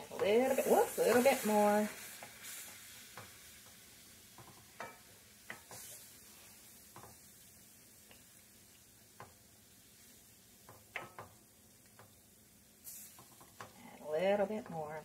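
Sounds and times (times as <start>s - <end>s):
spoon stirring in a pot: 0.0s - 7.4s, 9.1s - 12.2s, 12.8s - 15.0s
faint sizzle: 0.0s - 15.0s
spoon tapping and scraping pot: 3.1s - 6.0s, 6.9s - 7.2s, 10.6s - 12.2s.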